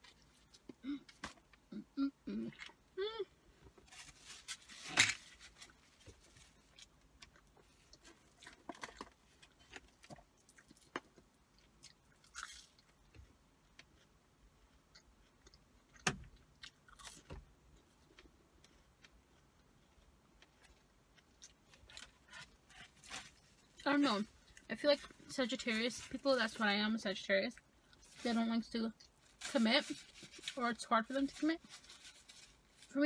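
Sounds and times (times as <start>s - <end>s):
chewing crunchy fried food: 6.4s - 25.3s.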